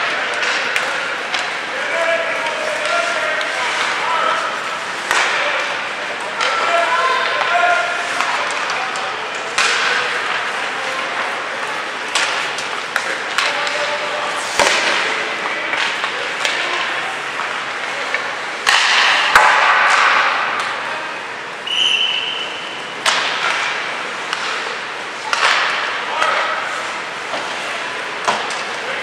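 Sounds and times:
sticks and pucks clacking: 0.0 - 21.4, 22.7 - 29.0.

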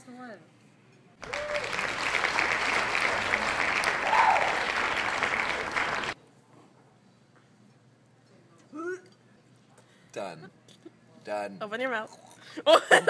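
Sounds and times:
crowd applause: 1.2 - 6.2.

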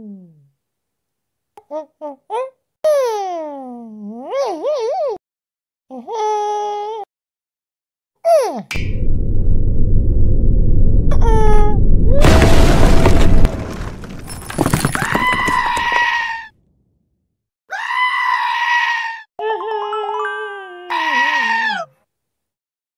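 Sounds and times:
rumbling shattering crash: 8.8 - 16.0
goat bleating: 20.9 - 21.9.

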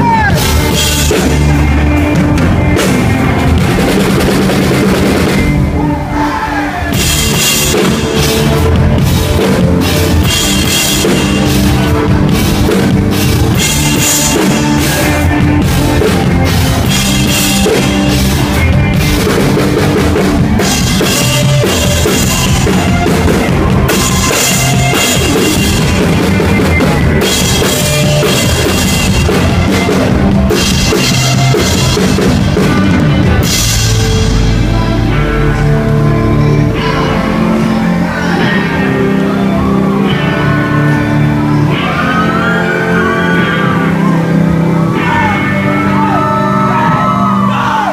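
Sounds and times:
bass: 0.0 - 47.9
electric guitars: 0.0 - 47.9
drum kit with crashing cymbals: 6.9 - 34.7.

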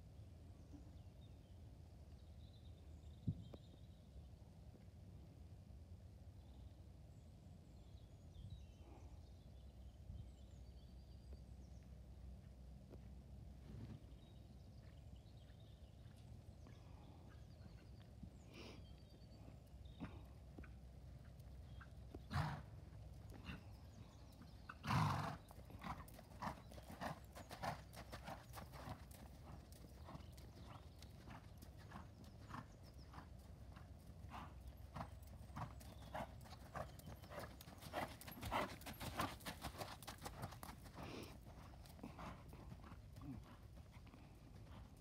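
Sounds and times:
horse hooves on sand: 19.1 - 45.0.

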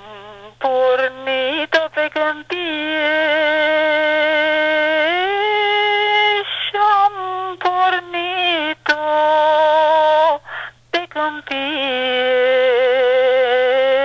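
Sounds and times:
person singing unaccompanied: 0.0 - 14.0
quick breaths: 10.4 - 10.9.

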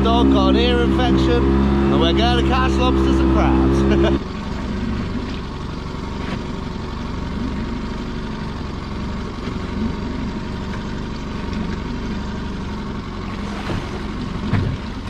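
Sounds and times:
boat motor drone: 0.0 - 15.0.

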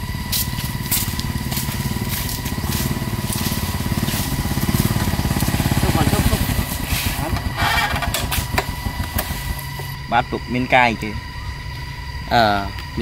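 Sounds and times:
motorcycle engine at low speed: 0.0 - 13.0.

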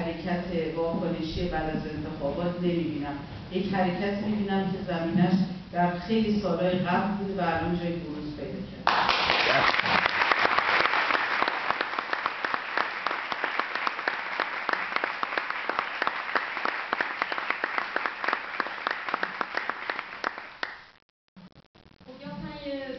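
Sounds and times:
audience applauding: 8.9 - 20.9.

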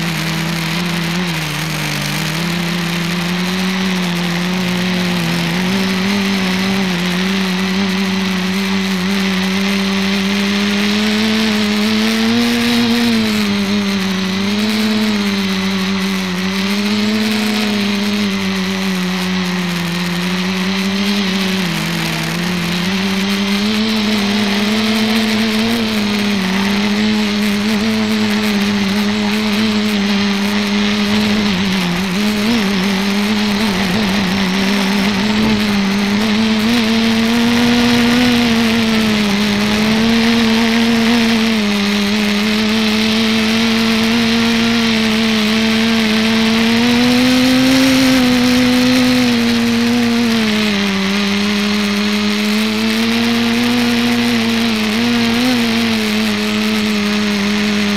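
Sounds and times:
drone motors humming: 0.0 - 57.9
rushing air: 30.0 - 41.6.

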